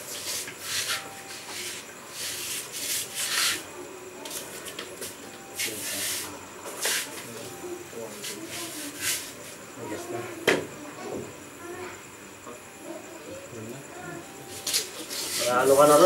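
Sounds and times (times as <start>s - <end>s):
scratchy rubbing: 0.1s - 3.7s, 5.6s - 7.2s, 8.1s - 9.6s, 14.6s - 15.8s.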